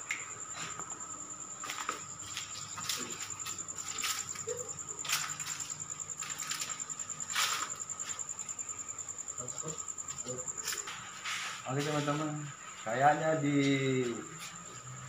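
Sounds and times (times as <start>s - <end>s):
night insects trilling: 0.0s - 15.0s
short scuffing noises: 1.6s - 8.3s, 10.6s - 12.3s.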